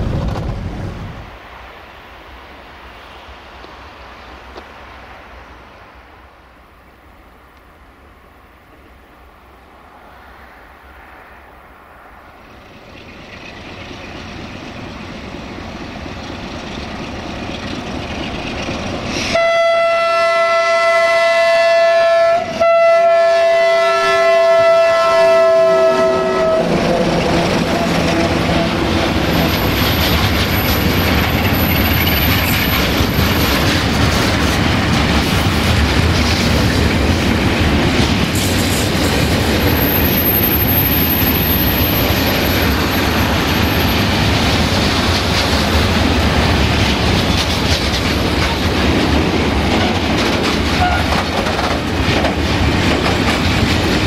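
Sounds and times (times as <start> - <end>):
diesel locomotive engine: 0.0 - 54.0
freight wagons rumbling: 12.4 - 19.3, 26.3 - 54.0
two-tone train horn blasts: 19.2 - 29.2, 39.6 - 42.0
wheel clatter over rail joints: 26.9 - 39.9, 41.6 - 54.0.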